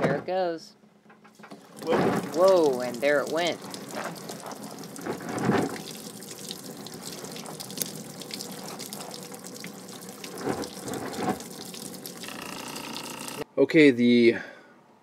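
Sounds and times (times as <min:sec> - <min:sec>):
liquid pouring into a pan: 0:01.5 - 0:13.4.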